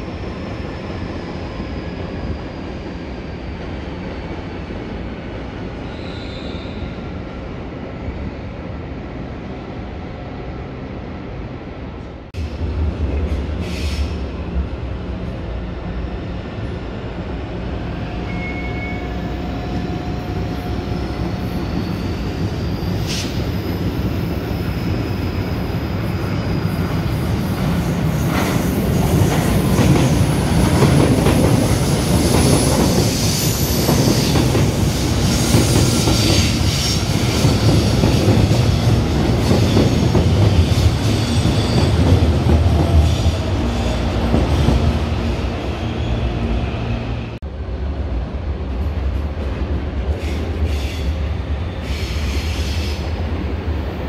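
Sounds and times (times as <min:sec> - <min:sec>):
high wheel squeals: 0:18.2 - 0:25.8
train wheels rumbling and clacking: 0:19.2 - 0:47.5.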